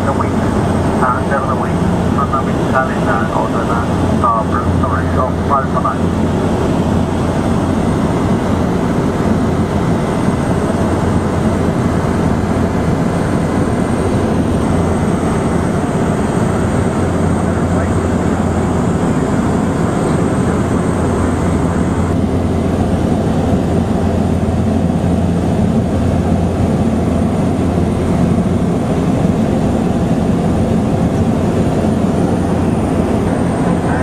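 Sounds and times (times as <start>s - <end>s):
constant low hum: 0.0s - 34.0s
light aircraft engine droning: 0.0s - 34.0s.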